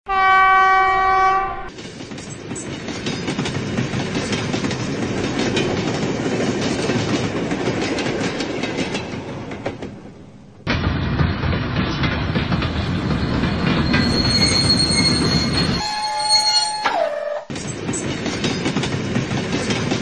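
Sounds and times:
model train horn: 0:00.1 - 0:01.7, 0:15.8 - 0:17.5.

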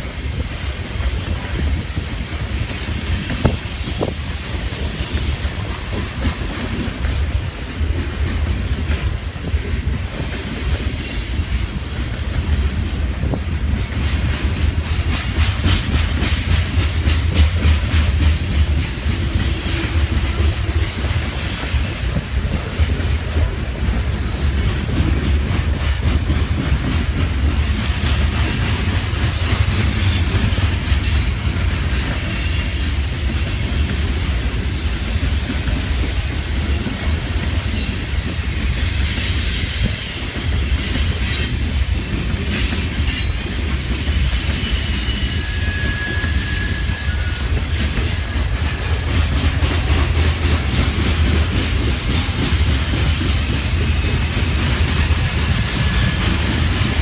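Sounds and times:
train cars rolling past: 0:00.0 - 0:57.0
faint wheel squeal: 0:44.6 - 0:48.5.

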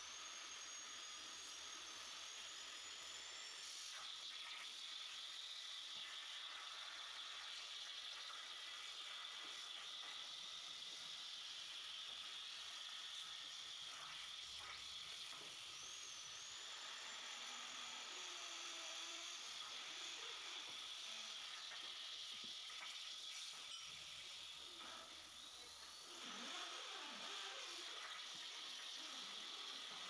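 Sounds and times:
plasma torch hissing: 0:03.6 - 0:16.7, 0:18.7 - 0:30.0
thin high whine: 0:12.2 - 0:30.0.

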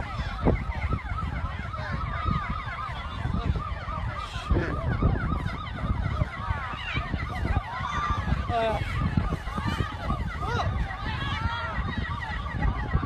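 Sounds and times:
sirens yelping: 0:00.0 - 0:13.0.

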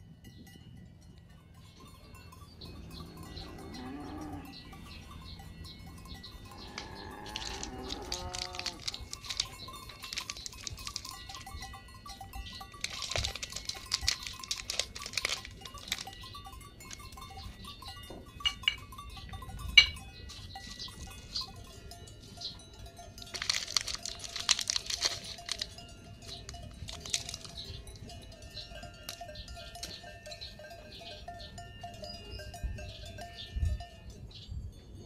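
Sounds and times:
foil packet crinkling: 0:07.3 - 0:11.5, 0:12.7 - 0:16.2, 0:23.2 - 0:27.6.

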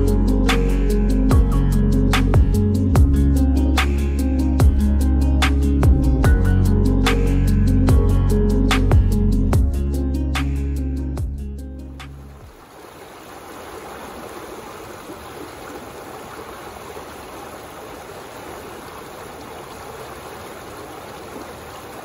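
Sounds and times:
background music: 0:00.0 - 0:12.4
water rushing over dam: 0:12.2 - 0:22.0.

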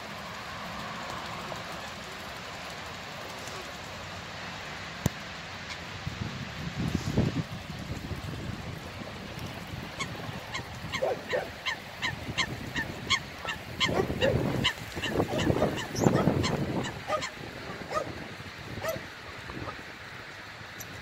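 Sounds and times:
wind on microphone: 0:06.0 - 0:19.9
short high waterfowl calls: 0:10.0 - 0:18.1
waterfowl honking: 0:10.0 - 0:18.1.

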